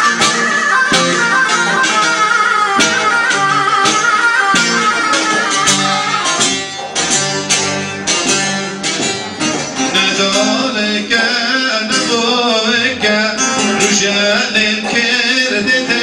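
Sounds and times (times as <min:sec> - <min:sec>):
keyboard playing a tune: 0:00.0 - 0:11.8
plucked long-necked lute: 0:00.0 - 0:16.0.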